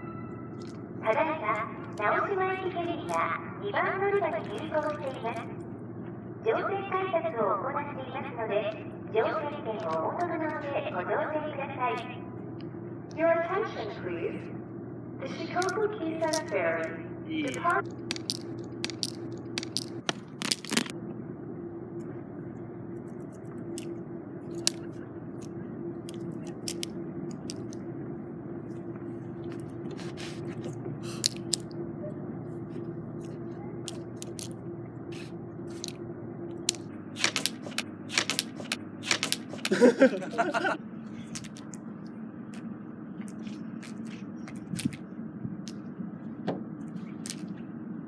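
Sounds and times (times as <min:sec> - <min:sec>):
steady background hum: 0:00.0 - 0:48.0
plastic rings clicking: 0:17.5 - 0:20.9, 0:26.1 - 0:27.8, 0:31.2 - 0:31.7.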